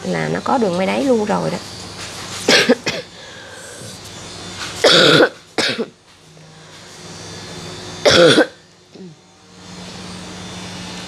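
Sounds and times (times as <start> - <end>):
person coughing: 2.5 - 3.1, 4.8 - 5.9, 8.0 - 9.1.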